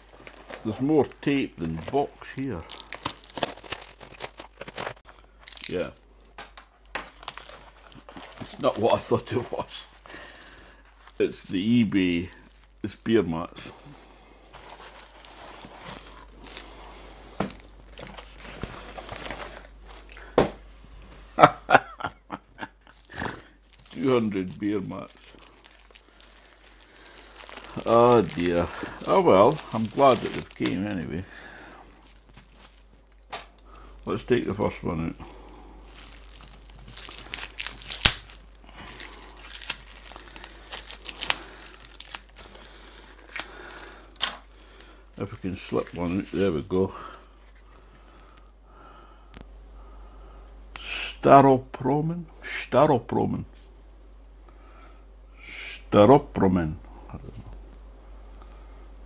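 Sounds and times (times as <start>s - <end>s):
cardboard and plastic rustling: 0.0s - 12.9s, 14.4s - 21.5s, 22.8s - 48.2s
wrapping crinkling and tearing: 0.0s - 20.3s, 22.6s - 48.5s.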